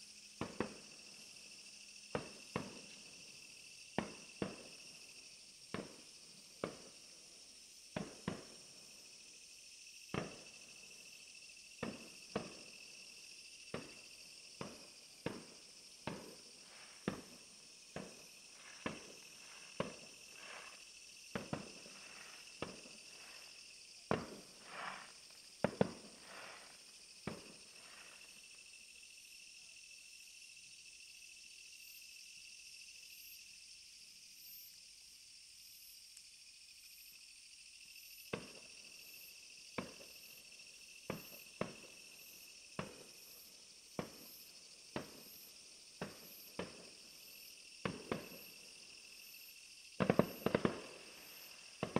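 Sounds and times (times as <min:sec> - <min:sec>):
fireworks bangs: 0:14.6 - 0:28.2, 0:50.0 - 0:51.9
fireworks crackle: 0:15.2 - 0:17.4, 0:18.0 - 0:28.3, 0:50.0 - 0:51.9.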